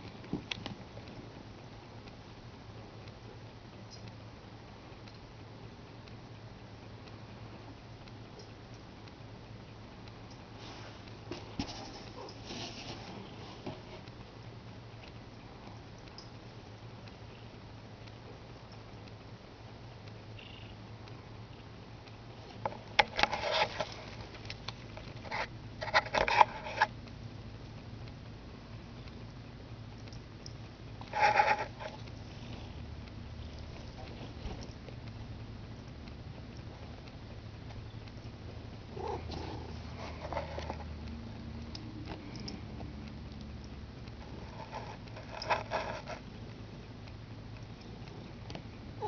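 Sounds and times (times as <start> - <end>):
rustling and scraping: 10.6 - 14.1, 22.4 - 26.9, 31.0 - 32.9, 39.0 - 40.9, 44.2 - 46.3
cat purring: 31.1 - 35.0, 37.7 - 43.4.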